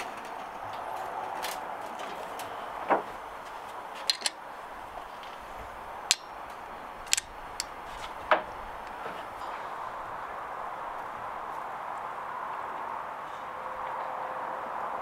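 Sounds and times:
utensils clicking and tapping: 4.0 - 9.5.

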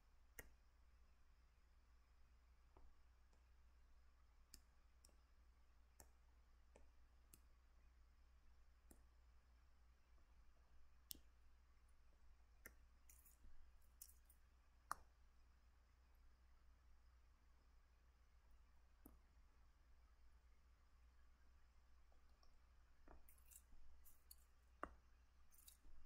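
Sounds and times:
faint computer mouse clicks: 22.4 - 25.9.

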